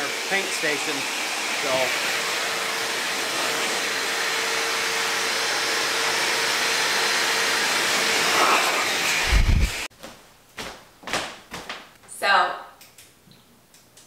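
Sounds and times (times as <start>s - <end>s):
blower rushing air: 0.0s - 9.9s.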